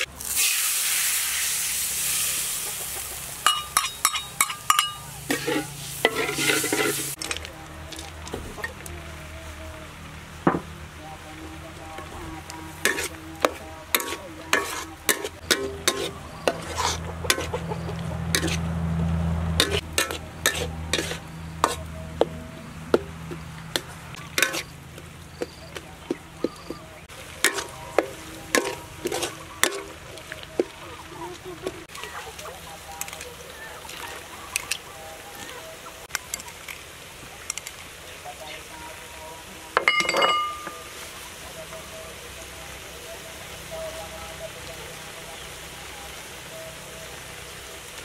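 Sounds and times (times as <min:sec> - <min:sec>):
low sizzle: 0:00.0 - 0:48.0
spatula scraping a metal wok: 0:03.4 - 0:07.4, 0:12.7 - 0:18.7, 0:19.6 - 0:24.7, 0:27.4 - 0:30.2.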